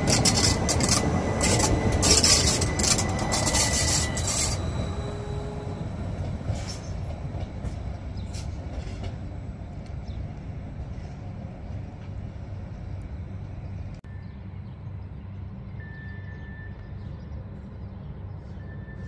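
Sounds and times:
high wheel squeal: 0:00.0 - 0:07.2
train wheels clattering on rails: 0:00.0 - 0:11.2.

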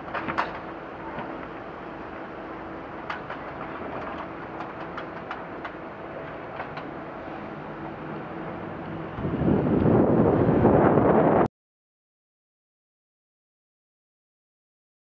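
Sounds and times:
traffic engines idling: 0:00.0 - 0:10.1.

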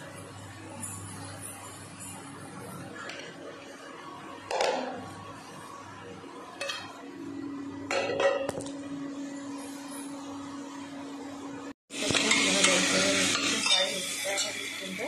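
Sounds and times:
utensils clattering against metal pot: 0:06.6 - 0:07.0, 0:07.9 - 0:08.6, 0:12.0 - 0:14.7.

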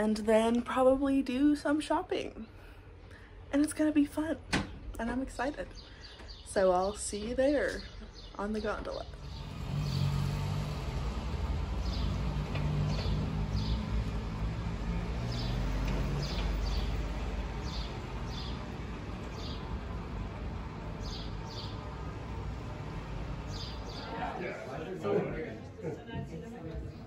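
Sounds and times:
bird chirping: 0:11.8 - 0:14.2, 0:15.2 - 0:19.7.

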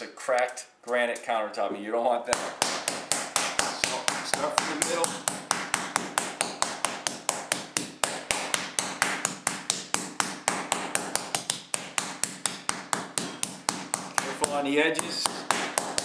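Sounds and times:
meat mallet pounding steak: 0:02.4 - 0:16.0.

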